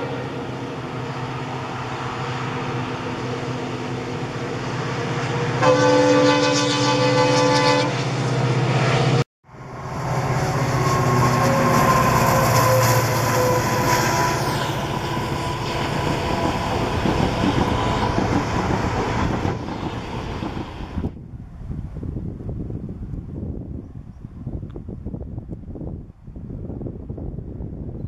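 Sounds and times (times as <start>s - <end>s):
locomotive engine running loud: 0.0s - 5.6s, 8.0s - 21.1s
locomotive horn blast: 4.8s - 9.0s, 9.9s - 16.9s.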